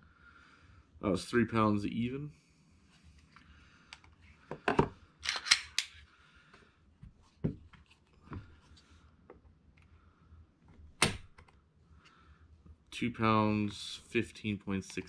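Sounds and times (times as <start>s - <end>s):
pistol and gauge clicks: 5.2s - 6.0s.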